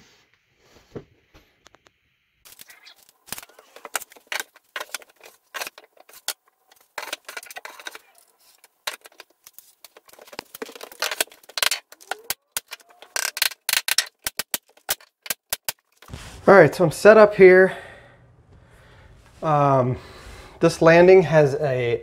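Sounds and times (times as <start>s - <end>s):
wood pieces knocking and scraping: 2.5s - 16.1s.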